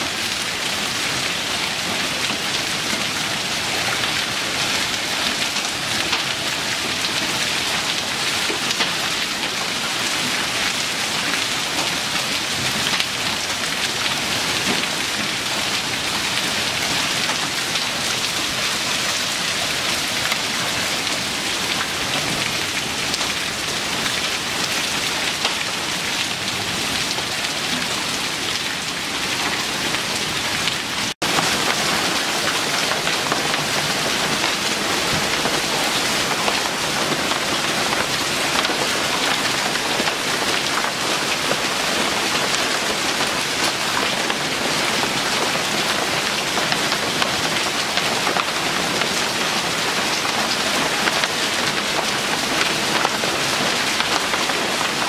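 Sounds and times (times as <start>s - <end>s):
heavy rain and hail: 0.0s - 55.0s.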